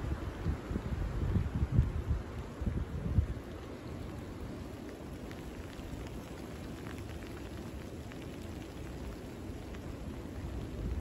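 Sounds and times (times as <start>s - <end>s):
wind gusts on microphone: 0.0s - 11.0s
wind rushing through trees: 0.0s - 11.0s
faint raindrop ticks: 3.2s - 11.0s.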